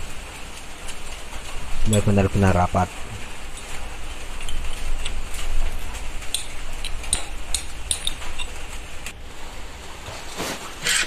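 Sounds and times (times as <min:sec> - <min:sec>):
socket wrench clinking: 0:06.3 - 0:08.6.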